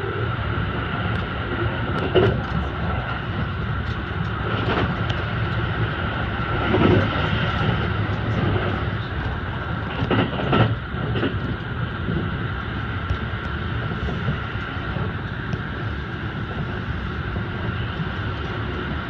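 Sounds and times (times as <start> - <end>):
train rumble inside carriage: 0.0 - 19.0.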